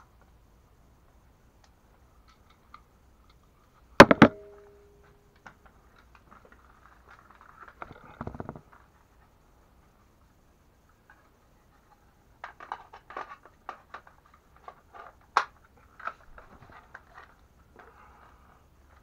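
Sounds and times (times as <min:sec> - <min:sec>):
ringing tone: 0:04.0 - 0:05.1.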